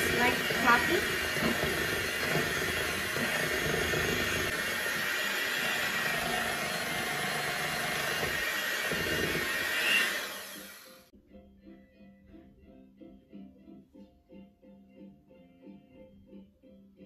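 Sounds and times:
electric hand mixer running: 0.0s - 11.1s.

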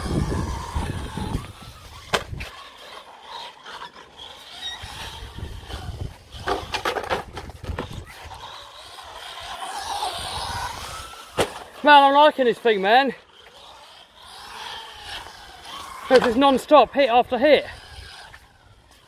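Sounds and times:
faint wavering motor whine: 0.0s - 19.0s
toy car tyres rolling on concrete: 0.0s - 19.0s.

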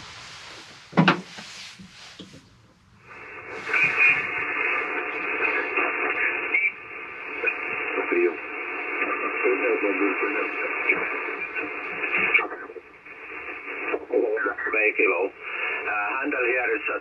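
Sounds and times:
faint hiss: 0.0s - 16.9s
radio receiver hiss and static: 0.0s - 17.0s.

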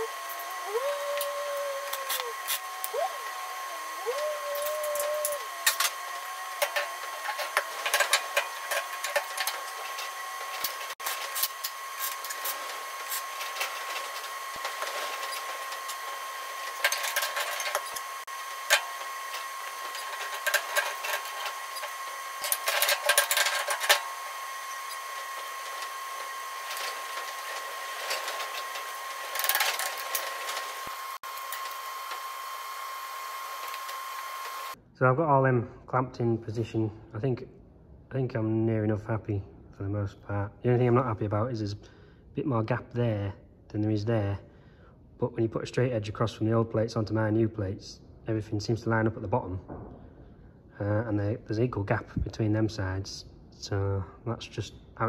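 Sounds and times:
faint hum: 0.0s - 5.9s.

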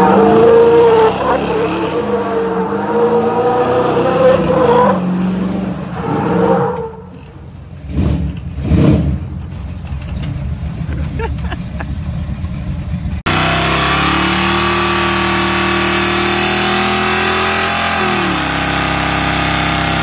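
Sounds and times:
pickup truck engine revving: 7.8s - 20.0s.

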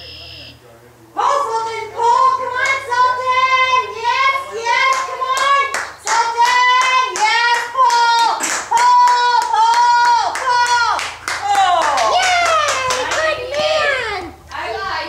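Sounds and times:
hand claps: 4.8s - 13.7s.

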